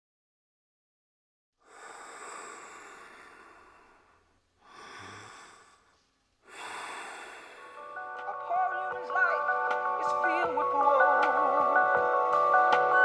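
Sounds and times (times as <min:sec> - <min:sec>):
heavy breathing: 0:01.6 - 0:08.2.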